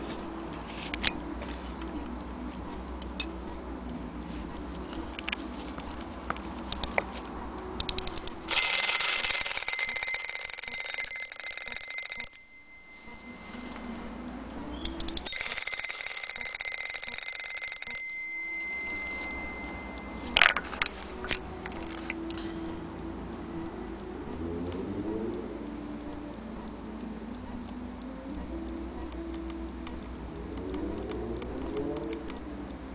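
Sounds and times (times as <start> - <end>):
clock movement clicks: 7.7 - 22.8
small clock bell ringing rapidly: 8.5 - 21.5.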